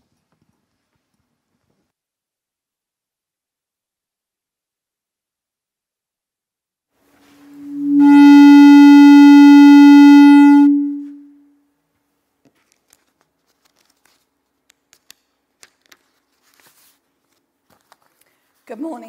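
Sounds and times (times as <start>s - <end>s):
microphone feedback howl: 7.3s - 11.4s.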